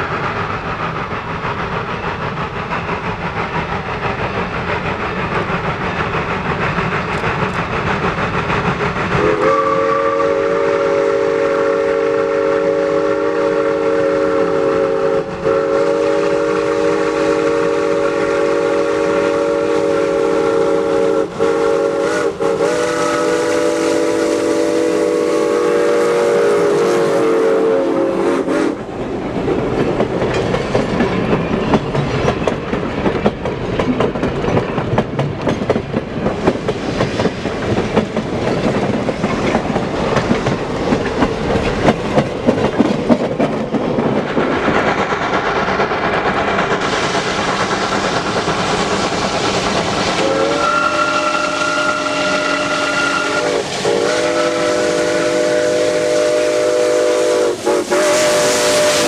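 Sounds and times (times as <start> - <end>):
steam locomotive rushing: 0.0 - 59.0
chime steam whistle: 9.2 - 28.9, 50.2 - 59.0.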